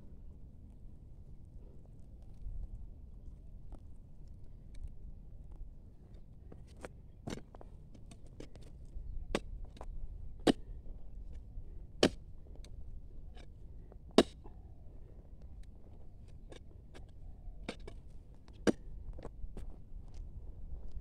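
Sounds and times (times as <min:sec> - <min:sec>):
digging bar striking stony soil: 0:07.3 - 0:07.6, 0:10.4 - 0:10.7, 0:12.0 - 0:12.3, 0:14.2 - 0:14.5, 0:16.4 - 0:19.7
clicks of grit and stones: 0:15.5 - 0:21.0.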